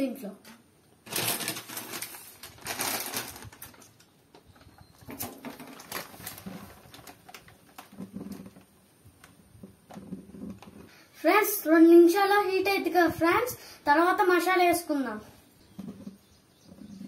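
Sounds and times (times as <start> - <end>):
plastic wrapper crinkling: 1.0 - 9.3.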